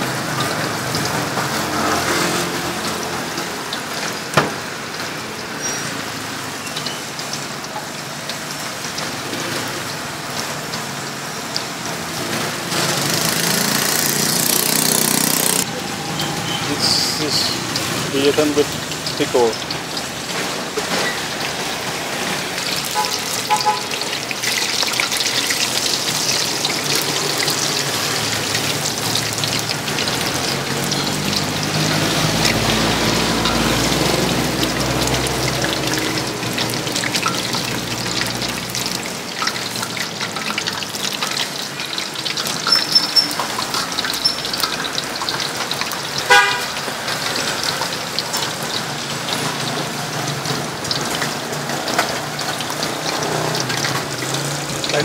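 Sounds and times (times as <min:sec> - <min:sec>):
vehicle passing: 0:00.0 - 0:04.0, 0:12.0 - 0:39.2, 0:43.6 - 0:55.0
food deep-frying in oil: 0:00.0 - 0:55.0
car horn toot: 0:23.0 - 0:24.0, 0:46.3 - 0:46.7.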